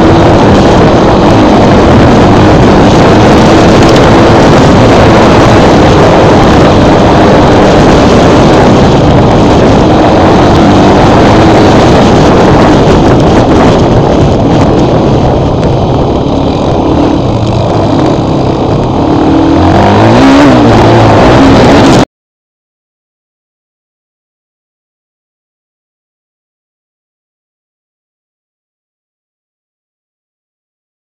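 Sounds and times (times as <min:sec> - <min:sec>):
quad bike engine revving: 0:00.0 - 0:22.0.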